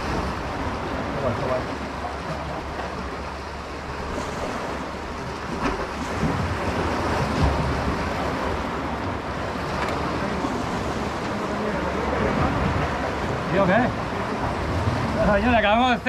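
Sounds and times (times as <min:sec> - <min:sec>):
sea surf washing: 0:00.0 - 0:16.0
wind buffeting microphone: 0:00.0 - 0:16.0.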